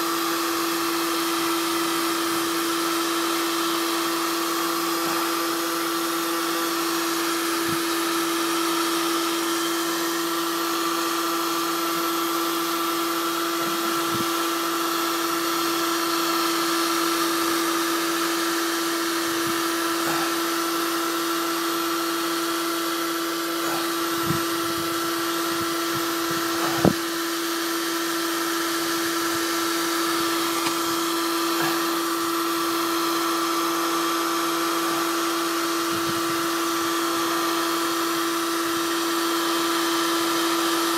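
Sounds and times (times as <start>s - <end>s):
heat gun fan hum and whine: 0.0s - 40.9s
hiss of blown air: 19.0s - 21.1s, 23.3s - 28.0s.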